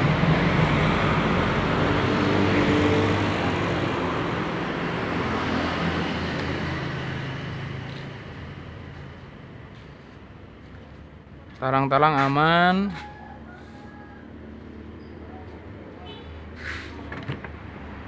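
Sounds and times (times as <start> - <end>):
vehicle engine hum: 0.0 - 11.6
road noise: 0.0 - 18.0.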